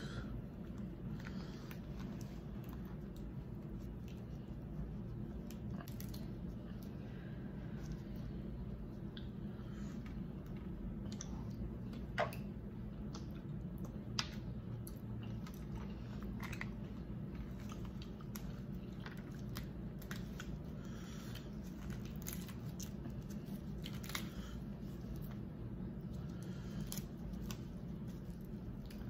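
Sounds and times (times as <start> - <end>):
steady low hum: 0.0 - 29.0
wet chewing: 10.0 - 29.0.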